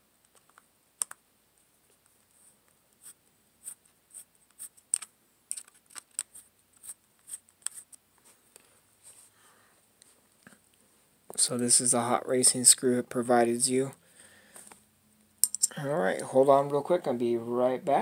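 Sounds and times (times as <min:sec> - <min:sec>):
small parts clicking and tapping: 0:04.8 - 0:06.3, 0:15.4 - 0:15.8.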